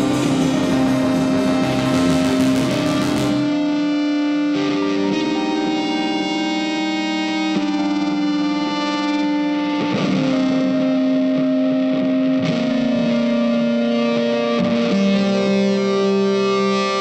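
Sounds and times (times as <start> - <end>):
guitar sustained chords: 0.0 - 17.0.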